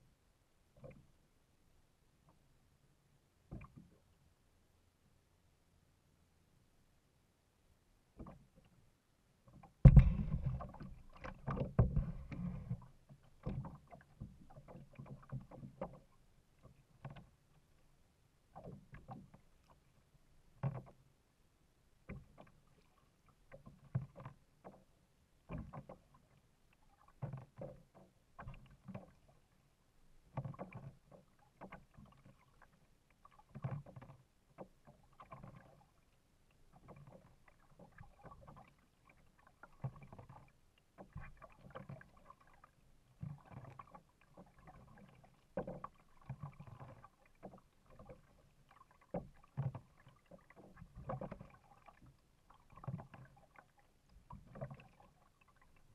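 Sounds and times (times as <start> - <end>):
kayak paddle splashing in water: 9.9 - 17.2, 30.2 - 36.0, 36.7 - 55.9.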